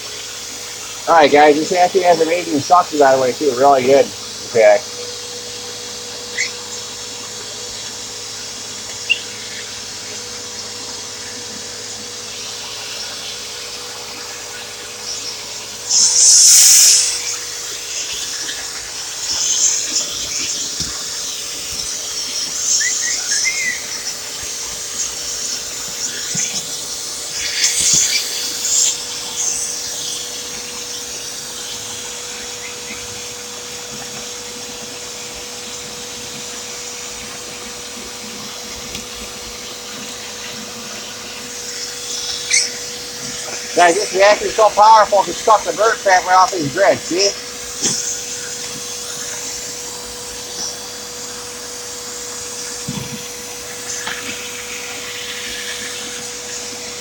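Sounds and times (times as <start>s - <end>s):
vacuum cleaner motor hum: 0.0s - 57.0s
rushing hiss of air: 15.0s - 30.4s.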